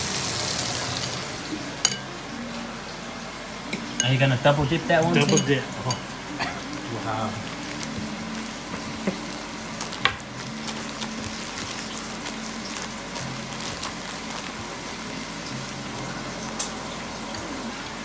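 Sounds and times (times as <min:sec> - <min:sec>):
oil sizzling: 0:00.0 - 0:18.0
plastic bag crinkling: 0:06.6 - 0:15.8.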